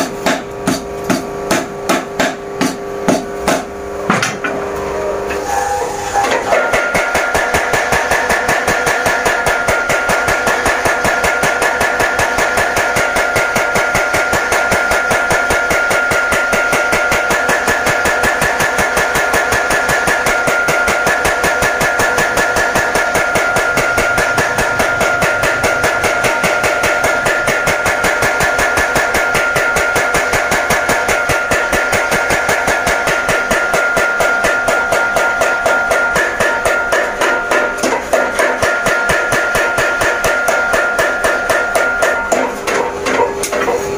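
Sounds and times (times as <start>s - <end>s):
power hammer pounding iron: 0.0s - 4.8s, 6.2s - 43.9s
high ringing tone: 4.8s - 6.5s.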